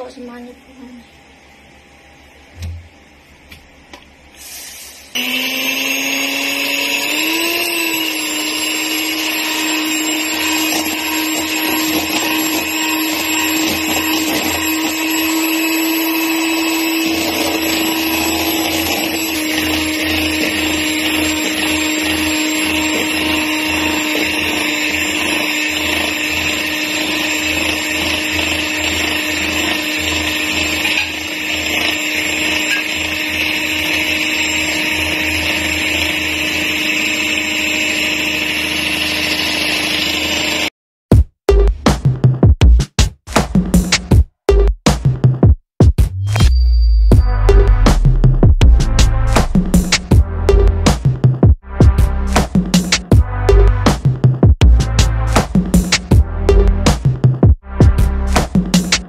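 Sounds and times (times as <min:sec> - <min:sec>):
electric hand mixer motor running: 0:05.1 - 0:40.7
beaters churning creamy mixture: 0:05.2 - 0:40.7.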